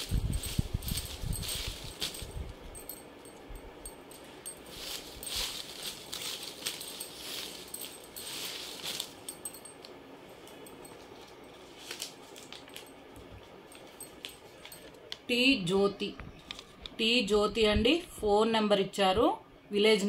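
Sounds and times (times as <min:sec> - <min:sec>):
paper crinkling: 0:04.7 - 0:09.3, 0:11.0 - 0:13.2.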